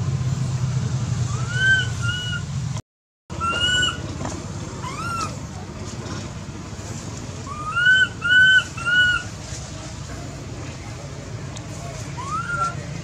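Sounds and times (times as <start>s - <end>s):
baby monkey squealing: 1.3s - 2.5s, 3.4s - 4.0s, 4.8s - 5.4s, 7.5s - 9.3s, 12.2s - 12.8s.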